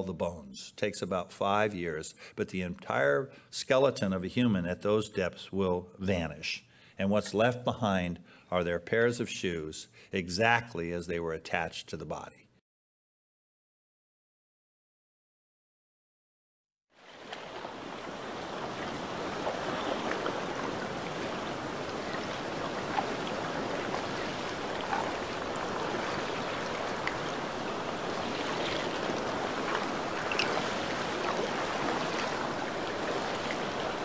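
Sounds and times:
ocean waves lapping and sloshing: 17.0s - 34.0s.

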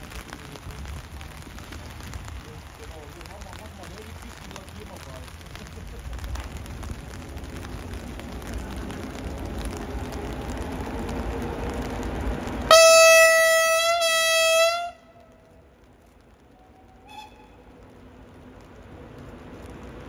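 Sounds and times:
approaching train rumbling: 0.0s - 20.0s
train horn blast: 12.7s - 15.2s, 16.7s - 17.7s.

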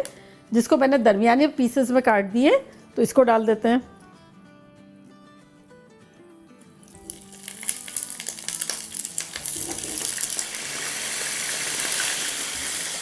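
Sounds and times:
potatoes sizzling in hot oil: 6.8s - 13.0s
crackling oil pops: 7.0s - 10.5s.

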